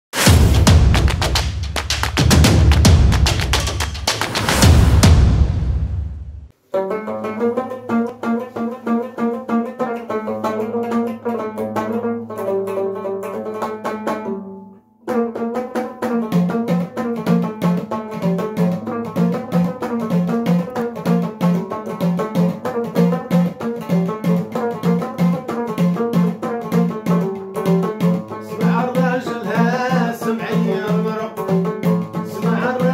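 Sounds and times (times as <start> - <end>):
plucked lute melody: 6.7 - 32.9.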